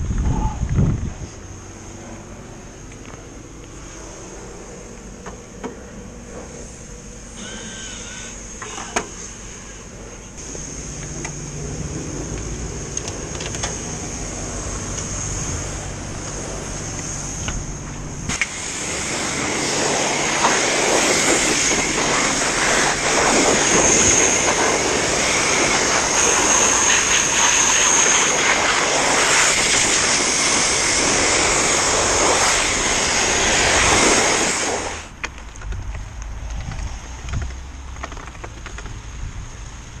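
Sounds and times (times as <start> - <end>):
machine hum: 0.0 - 40.0
pressure washer jet hissing: 6.5 - 35.2.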